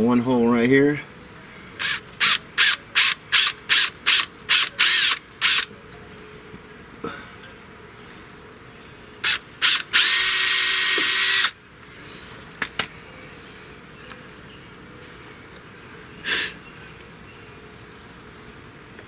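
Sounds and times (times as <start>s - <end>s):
cordless drill drilling: 1.8s - 5.7s, 9.2s - 11.6s.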